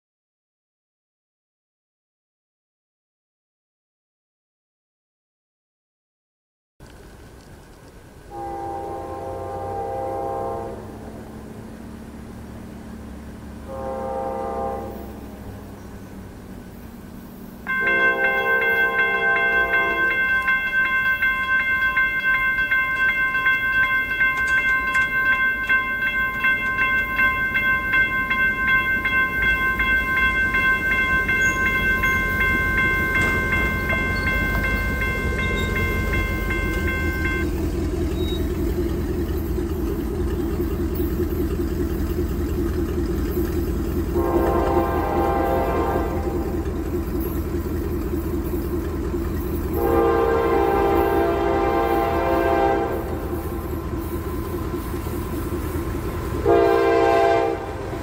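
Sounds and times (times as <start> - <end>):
locomotive rumble: 6.8 - 58.0
train air horn blasts: 8.3 - 11.4, 13.6 - 15.6, 17.7 - 39.2, 43.9 - 47.7, 49.6 - 55.5, 56.3 - 58.0
railroad crossing bell ringing: 17.5 - 58.0.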